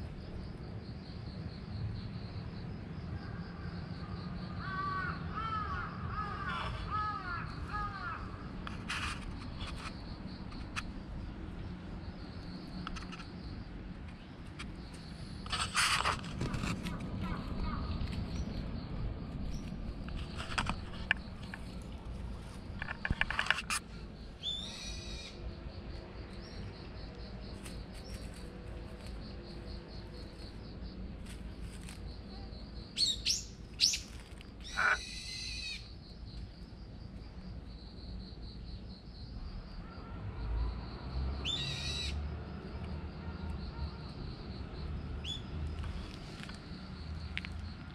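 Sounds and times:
birds calling: 22.8 - 25.4, 33.0 - 35.9.

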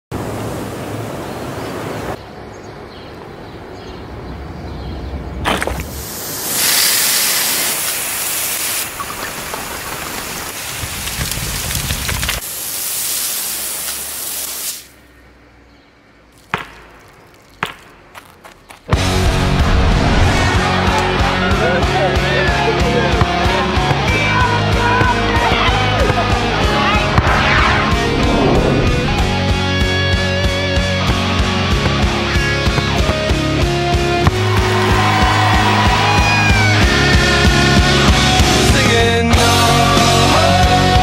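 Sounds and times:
steady rushing noise: 19.0 - 21.0, 26.4 - 31.0.

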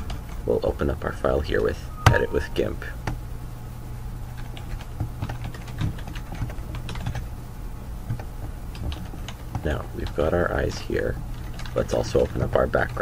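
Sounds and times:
steady low hum: 0.0 - 13.0
keyboard typing: 4.3 - 7.3, 8.0 - 13.0.

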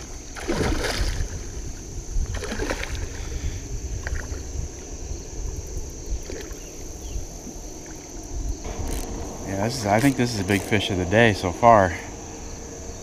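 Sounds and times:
fish splashing and thrashing: 0.0 - 3.3.

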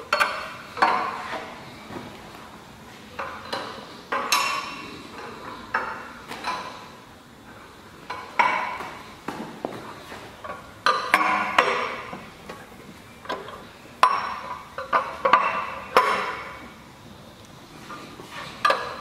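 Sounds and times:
metallic clanks of wrench on pipe clamp: 3.2 - 4.8.

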